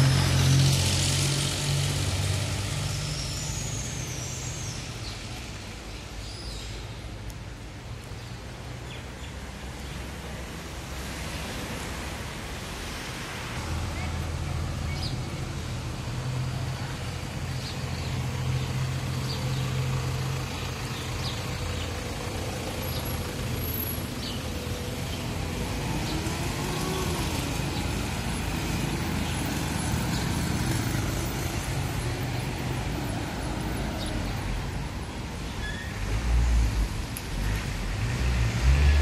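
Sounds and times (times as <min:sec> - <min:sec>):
car and motorbike engines passing: 0:00.0 - 0:05.6, 0:10.4 - 0:39.0.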